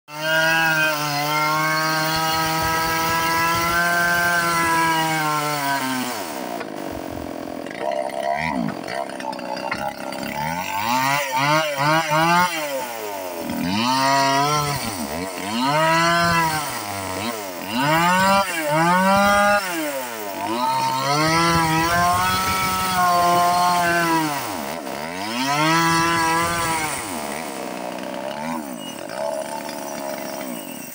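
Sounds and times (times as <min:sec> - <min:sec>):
chainsaw revving: 0:00.1 - 0:30.9.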